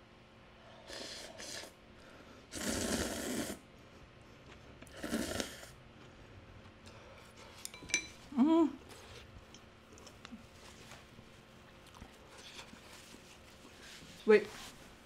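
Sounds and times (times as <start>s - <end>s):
person slurping noodles: 0.8s - 1.8s, 2.5s - 3.7s, 4.9s - 5.8s.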